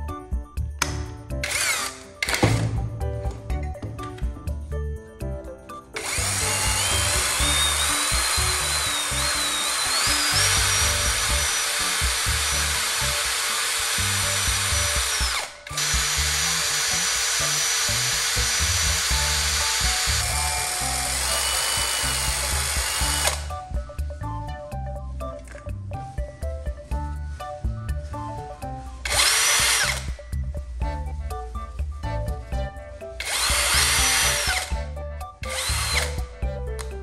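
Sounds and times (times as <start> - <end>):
cordless drill motor whine: 1.4 - 2.0, 6.0 - 23.5, 29.1 - 30.1, 33.2 - 34.8, 35.5 - 36.2.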